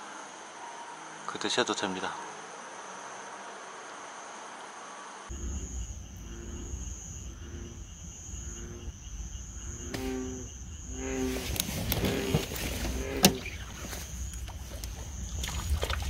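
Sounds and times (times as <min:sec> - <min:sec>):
crickets chirring: 0:00.0 - 0:16.0
frog calling: 0:05.3 - 0:16.0.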